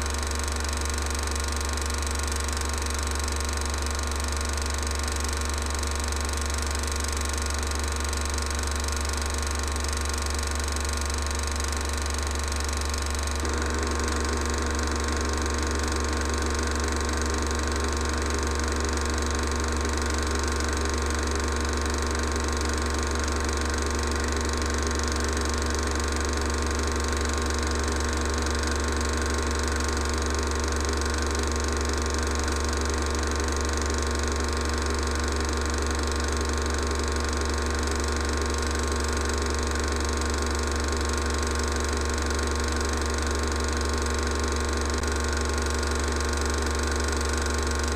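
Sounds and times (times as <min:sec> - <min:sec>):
film projector whirring: 0:00.0 - 0:47.9
low hum: 0:13.0 - 0:18.6.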